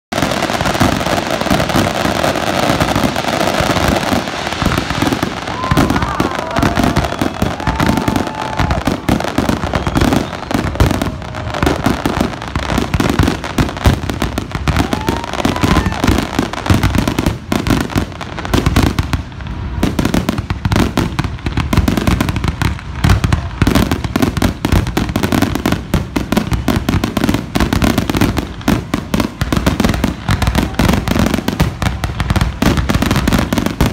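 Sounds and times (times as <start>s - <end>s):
fireworks crackle: 0.1s - 33.9s.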